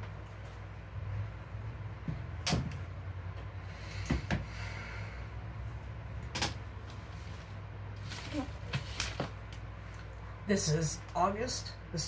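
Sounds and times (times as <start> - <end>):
low steady hum: 0.0 - 12.0
rustling: 6.9 - 9.4.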